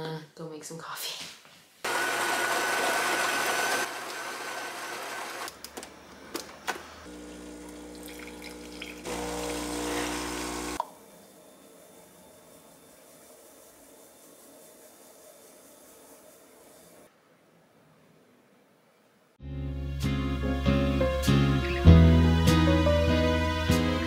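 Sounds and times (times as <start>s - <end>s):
espresso pump humming: 1.9s - 5.5s, 7.1s - 11.0s
coffee grinder whirring: 1.9s - 5.6s, 7.1s - 10.9s.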